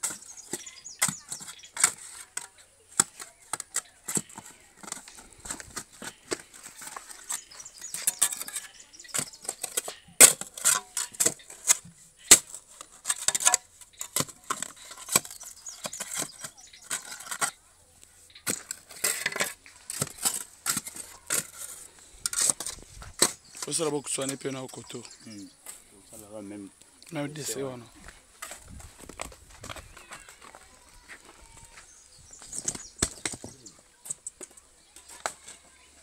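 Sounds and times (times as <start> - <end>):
hand tool striking stone: 0.0 - 17.6, 18.4 - 24.4, 32.4 - 35.8.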